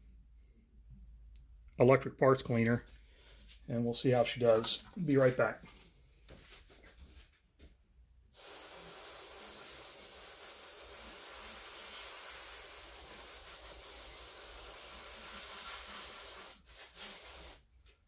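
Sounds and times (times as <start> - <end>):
aerosol spray hissing: 8.4 - 17.6.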